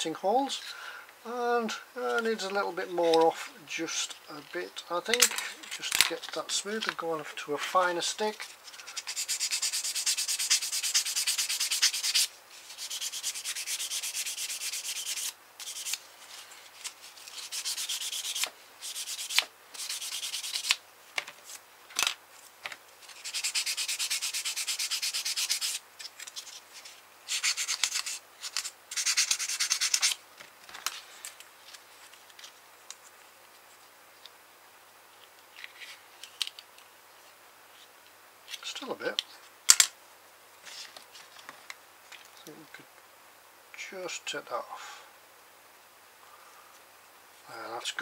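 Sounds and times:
sanding stick rubbing plastic: 0:08.9 - 0:16.0, 0:16.8 - 0:20.8, 0:23.0 - 0:25.8, 0:26.4 - 0:30.2.

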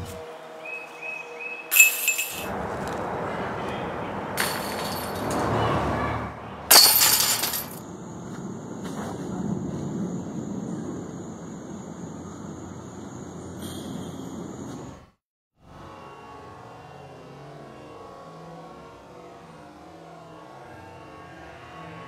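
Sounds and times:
outdoor background noise: 0:00.0 - 0:15.2
discs rattling metal chains: 0:01.7 - 0:02.5, 0:04.4 - 0:05.6, 0:06.7 - 0:07.8.

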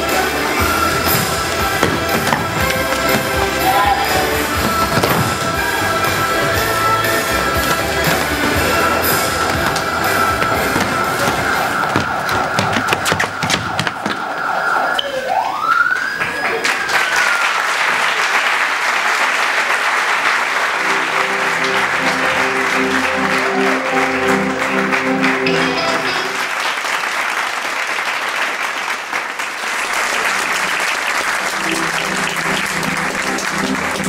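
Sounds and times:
music: 0:00.0 - 0:13.3, 0:20.7 - 0:26.4, 0:31.4 - 0:34.0
audience applauding: 0:00.0 - 0:14.8, 0:15.4 - 0:34.0
siren: 0:07.2 - 0:17.4.

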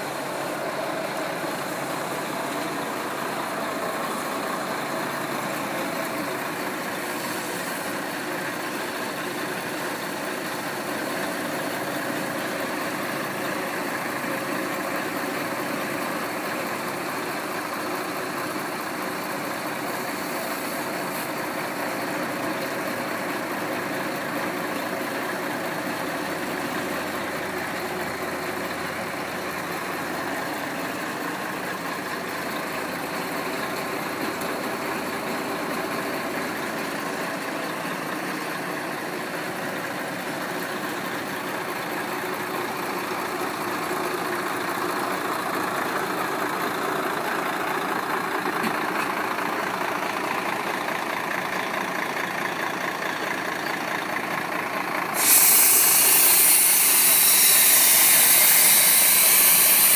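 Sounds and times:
loud hiss: 0:00.0 - 0:08.8, 0:55.0 - 0:59.9
truck engine idling: 0:00.0 - 0:59.9.

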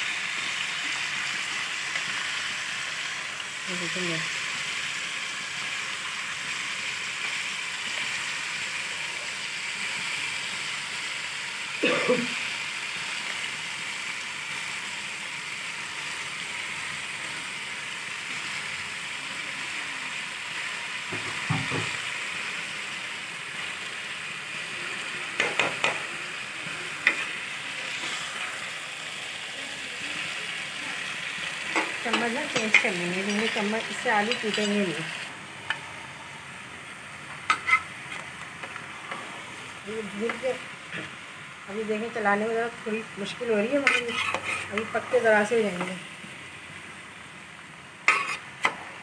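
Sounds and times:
potatoes sizzling in oil: 0:00.0 - 0:49.0
metal spoon scraping pot: 0:37.5 - 0:38.2, 0:43.8 - 0:44.9, 0:48.1 - 0:48.4.

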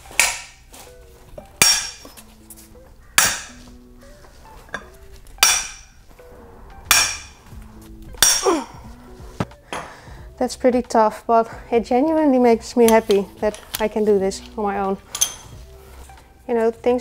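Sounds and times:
faint background music: 0:00.0 - 0:17.0
tools clanking on metal: 0:04.6 - 0:06.0, 0:08.1 - 0:08.7, 0:12.8 - 0:15.6.

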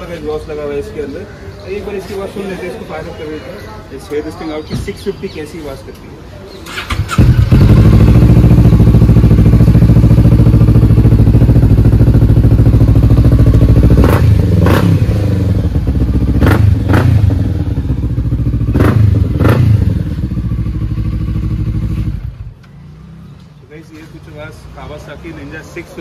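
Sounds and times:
motorcycle engine idling: 0:06.7 - 0:23.6.

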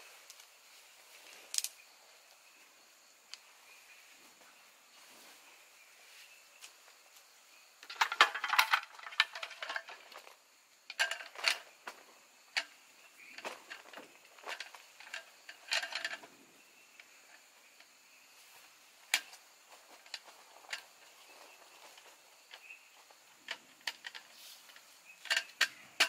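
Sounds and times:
metal camp table rattling: 0:07.8 - 0:18.0, 0:19.0 - 0:26.0.

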